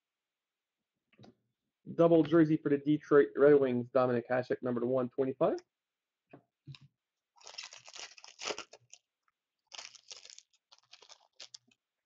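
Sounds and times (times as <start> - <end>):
trading cards rustling and scraping: 9.7 - 11.8.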